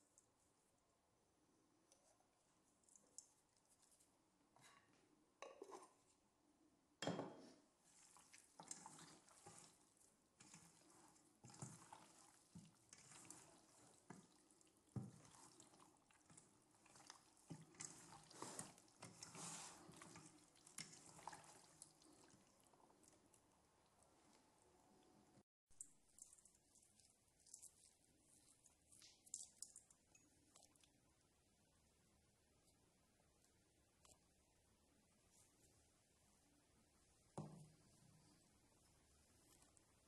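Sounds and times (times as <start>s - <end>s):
wet squelches of raw meat: 7.9s - 24.6s.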